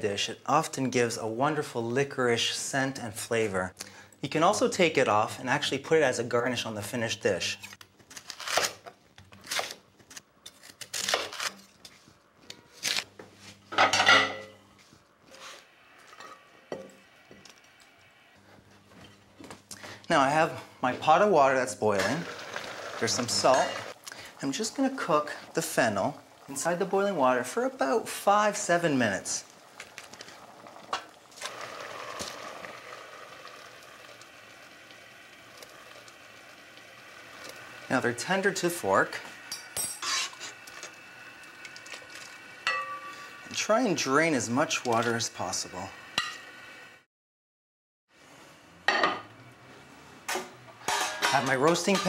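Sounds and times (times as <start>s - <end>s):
ceramic plates clattering: 13.8s - 14.6s, 50.8s - 52.0s
boiling water bubbling: 21.9s - 39.3s, 40.3s - 45.6s.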